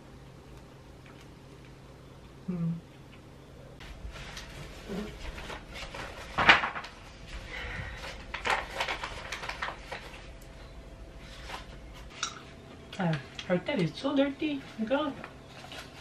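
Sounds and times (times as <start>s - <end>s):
packaging rustling: 3.8s - 10.4s.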